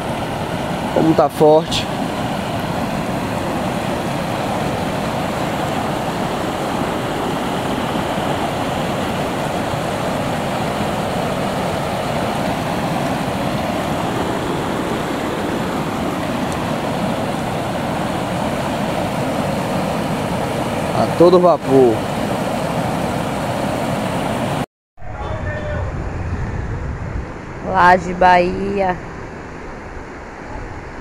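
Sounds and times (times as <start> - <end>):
creek water rushing: 0.0 - 24.6.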